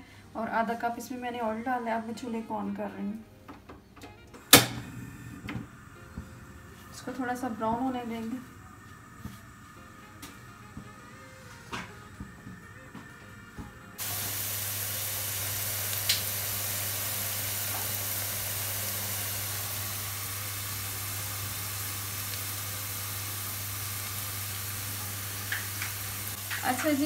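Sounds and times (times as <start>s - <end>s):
onions sizzling in hot oil: 14.0s - 27.0s.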